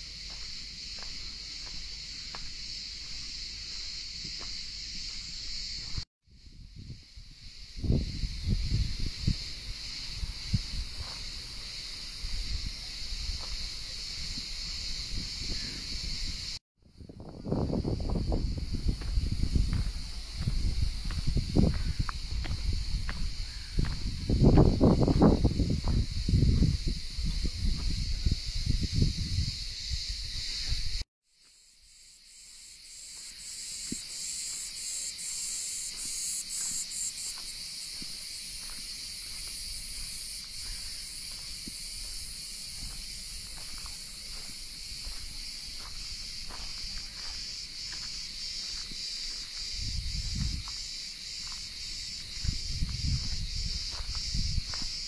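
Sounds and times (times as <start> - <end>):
insects chorus pulsing: 0.0 - 55.0.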